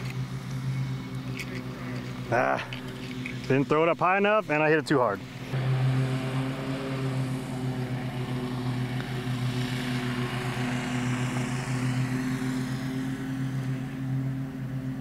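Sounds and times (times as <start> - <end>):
small motor humming: 5.2 - 15.0.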